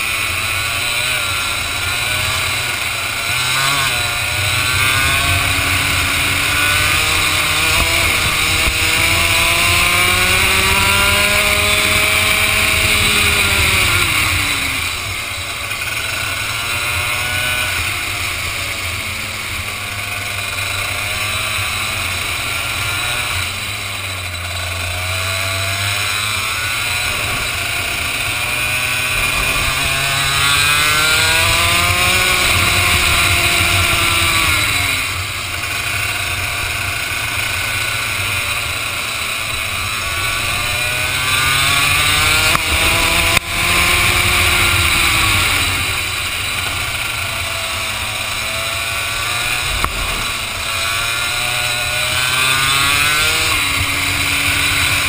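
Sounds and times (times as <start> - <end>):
kart engine accelerating: 0.0 - 55.0
steady rushing hiss: 44.2 - 52.6.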